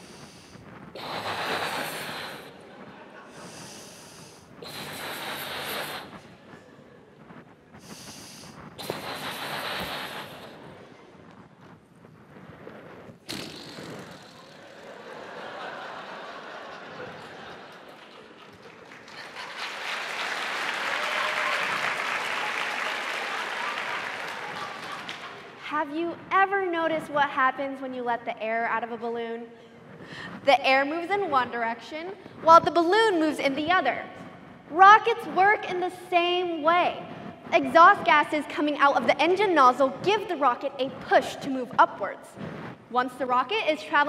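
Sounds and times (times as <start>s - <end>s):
person breathing in: 0.0s - 2.6s, 3.3s - 6.3s, 7.8s - 10.7s, 30.0s - 30.4s
breaths blown into balloon: 0.0s - 15.0s
large audience applauding: 14.6s - 25.7s.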